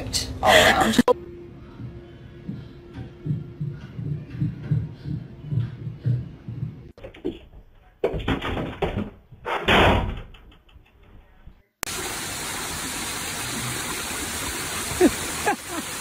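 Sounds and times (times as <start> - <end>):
knocks and thumps: 2.9 - 11.0
water cascading over stone steps: 11.9 - 16.0.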